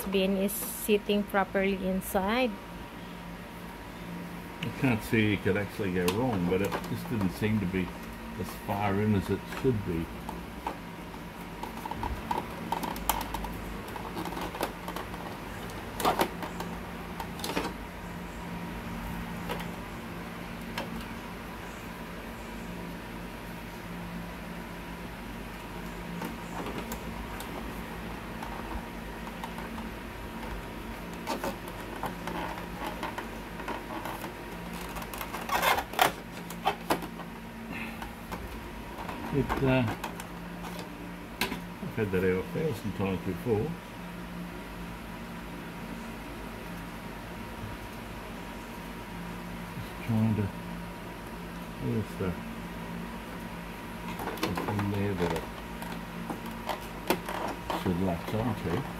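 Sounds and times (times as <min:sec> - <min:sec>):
low steady hum: 0:00.0 - 0:58.9
plastic parts clicking and knocking: 0:06.0 - 0:07.4, 0:11.6 - 0:17.8, 0:54.1 - 0:58.4.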